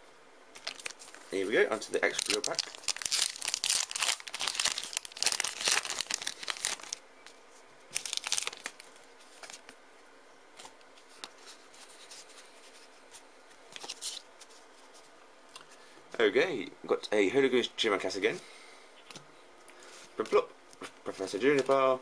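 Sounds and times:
foil wrapper tearing and crinkling: 0.6s - 1.2s, 1.9s - 7.0s, 7.9s - 8.9s.

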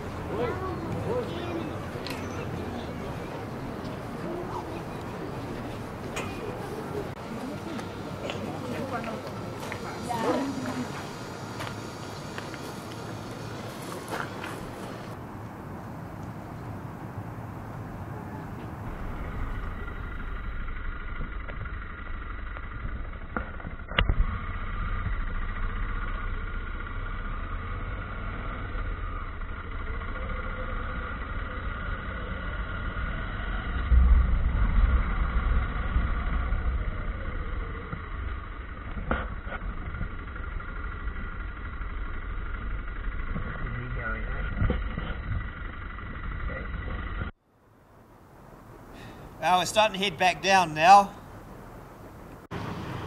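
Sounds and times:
motorcycle engine running: 18.8s - 47.4s.

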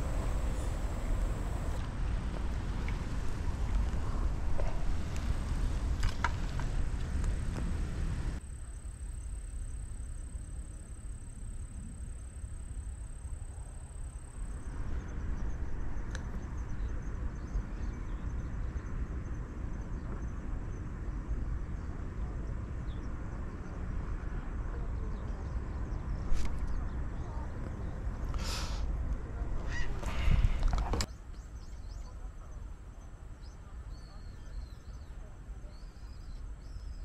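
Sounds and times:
broad hiss: 0.0s - 1.8s, 28.4s - 28.9s
high insect trill: 0.0s - 1.8s, 8.4s - 14.8s
low rumble: 0.0s - 13.6s.

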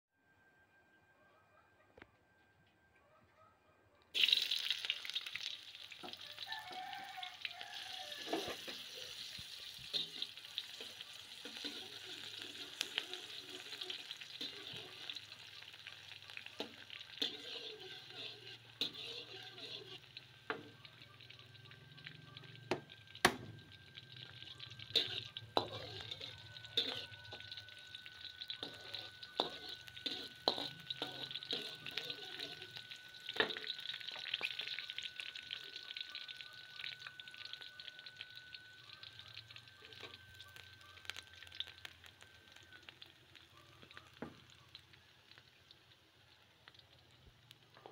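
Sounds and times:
vegetables sizzling in hot oil: 4.2s - 47.9s
metal spatula scraping a wok: 7.7s - 20.7s, 24.5s - 33.7s.

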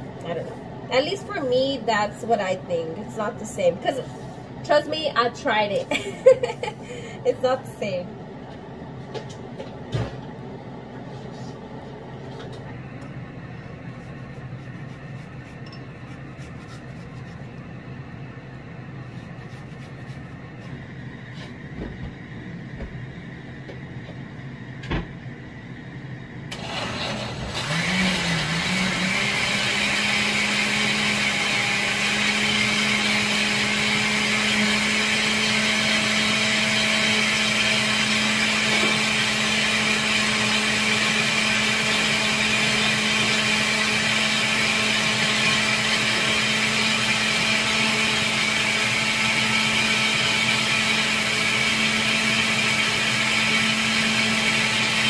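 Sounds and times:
blender motor running: 26.5s - 55.0s.

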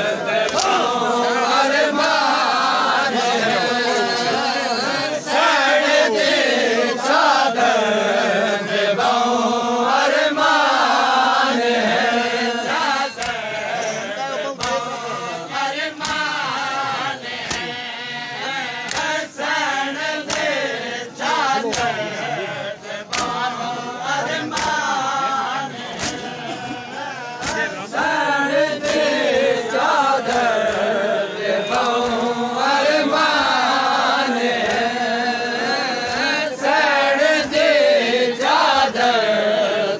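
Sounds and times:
men chanting in unison: 0.0s - 39.9s
hands slapping chests: 0.4s - 0.9s, 13.1s - 13.8s, 14.6s - 14.9s, 15.9s - 16.4s, 17.4s - 17.8s, 18.8s - 19.5s, 20.2s - 22.1s, 23.0s - 23.6s, 24.2s - 25.0s, 25.8s - 26.4s, 27.4s - 27.8s, 28.7s - 31.0s, 31.6s - 32.9s, 34.0s - 35.0s.

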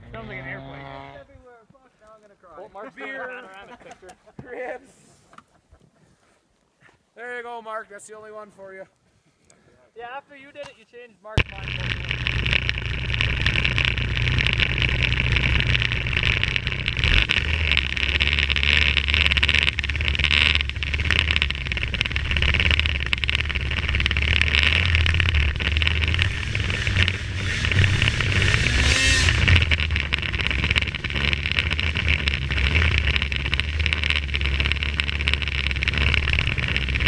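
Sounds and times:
constant high hiss: 1.2s - 37.0s
snowmobile engine running: 11.4s - 37.0s.

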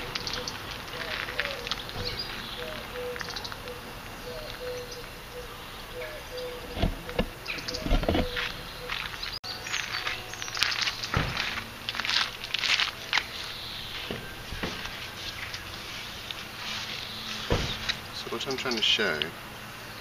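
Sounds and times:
low steady background noise: 0.0s - 20.0s
dull thumps: 17.5s - 18.0s.

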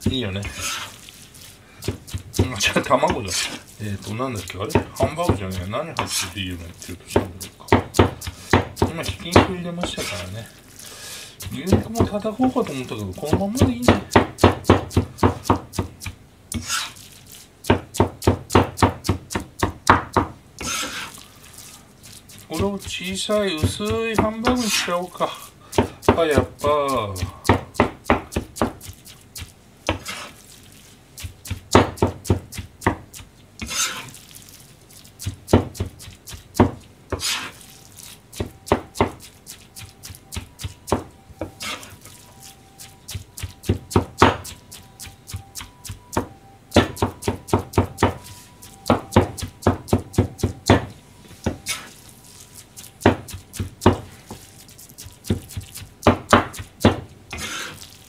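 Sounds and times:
cleaver chopping on cutting board: 1.8s - 10.2s, 11.4s - 16.9s, 17.6s - 21.1s, 22.3s - 24.9s, 25.7s - 30.3s, 31.2s - 34.1s, 35.2s - 37.5s, 38.3s - 42.0s, 42.8s - 51.9s, 53.0s - 54.4s, 55.0s - 57.7s.

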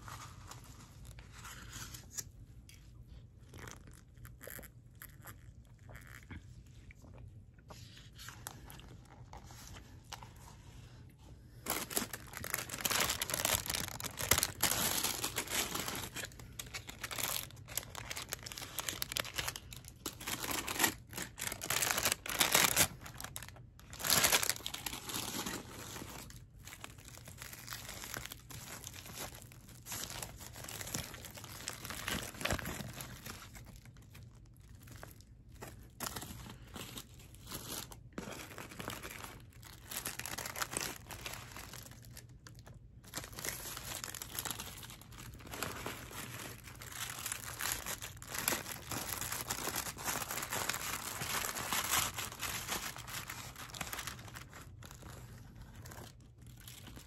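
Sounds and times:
paper and foil wrapper crinkling: 0.0s - 6.4s, 11.6s - 57.0s.

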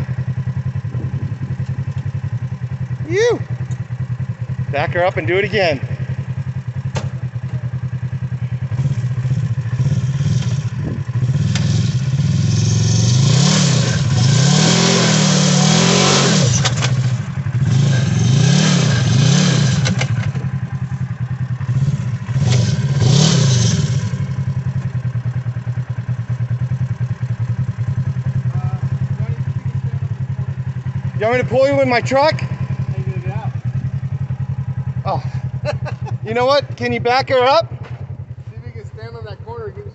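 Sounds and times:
engine revving: 4.5s - 7.1s, 8.5s - 25.5s, 26.7s - 38.1s.

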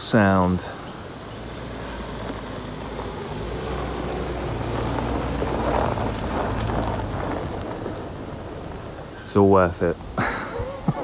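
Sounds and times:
car tyres crunching over gravel: 0.2s - 10.2s
engine low hum: 0.6s - 9.3s.

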